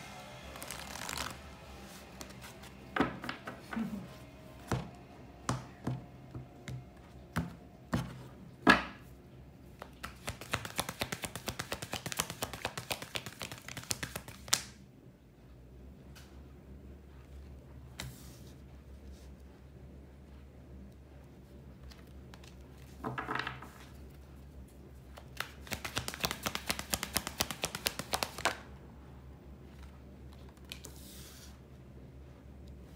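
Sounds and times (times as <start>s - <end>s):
cards shuffling with crisp clicks: 0.4s - 4.0s, 9.7s - 14.8s, 25.1s - 28.7s, 29.7s - 31.5s
cards tapping and knocking: 9.8s - 14.7s, 25.2s - 28.6s.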